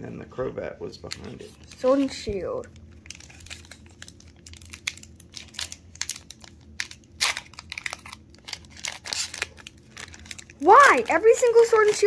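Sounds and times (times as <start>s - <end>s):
foil wrapper tearing and crinkling: 2.8s - 12.0s.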